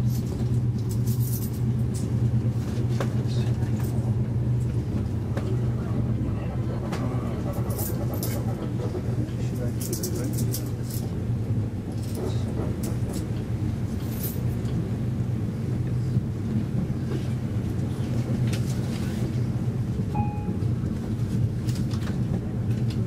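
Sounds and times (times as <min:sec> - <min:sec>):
train rumbling from inside: 0:00.0 - 0:23.0.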